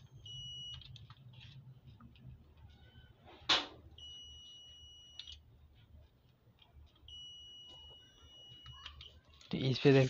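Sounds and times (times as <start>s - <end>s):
multimeter continuity beep: 0.0s - 1.0s, 4.0s - 5.4s, 7.0s - 9.1s.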